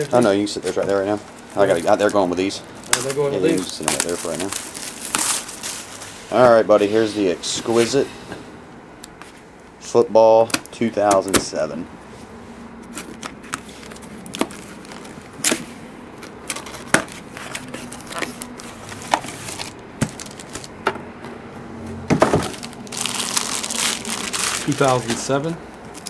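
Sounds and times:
plastic shrink-wrap crinkling: 0:00.6 - 0:06.3, 0:12.9 - 0:20.8, 0:22.4 - 0:26.0
stiff cardboard clicking and cracking: 0:12.9 - 0:20.8.

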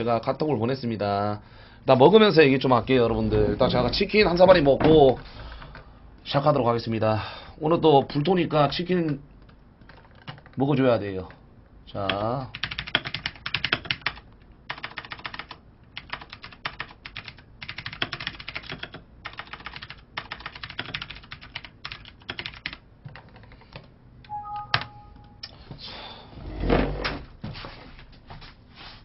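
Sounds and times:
keyboard typing: 0:09.4 - 0:10.6, 0:12.1 - 0:25.4
electronic two-tone beep: 0:24.3 - 0:25.4.

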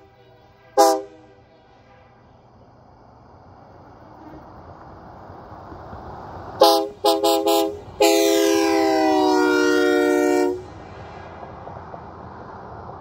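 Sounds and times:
train horn chord blasts: 0:00.0 - 0:02.7, 0:06.6 - 0:10.7
truck engine and tyre noise: 0:00.0 - 0:13.0.

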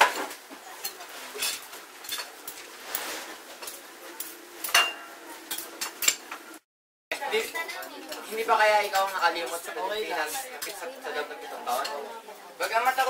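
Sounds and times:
cutlery clinking on plates: 0:00.0 - 0:02.7, 0:03.6 - 0:06.4.

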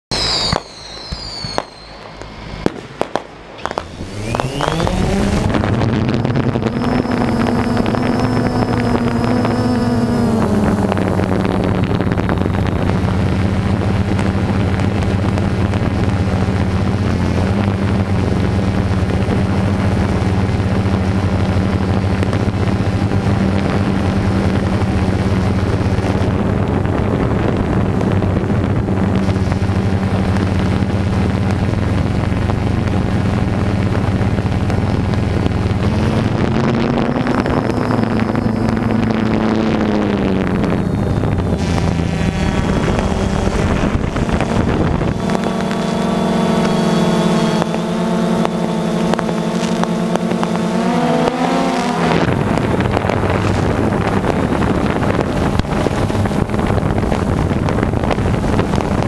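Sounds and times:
firework whistle: 0:00.1 - 0:11.5, 0:34.8 - 0:54.8
firework bangs and crackles: 0:00.1 - 0:59.0
quadcopter motors humming: 0:00.1 - 0:59.0.

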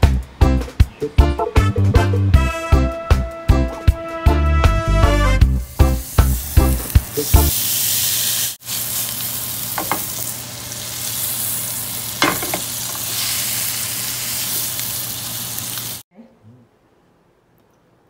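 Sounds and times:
steak sizzling in a grill pan: 0:05.6 - 0:16.0.

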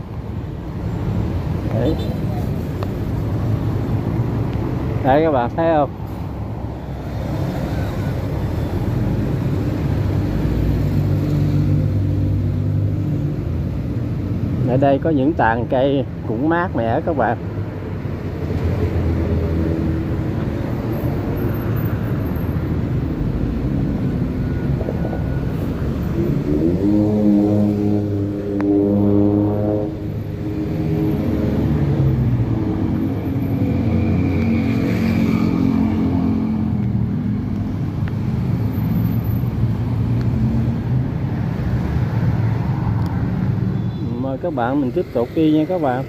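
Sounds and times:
traffic rumble on wet street: 0:00.0 - 0:46.0
vehicle engine accelerating: 0:25.7 - 0:30.0.

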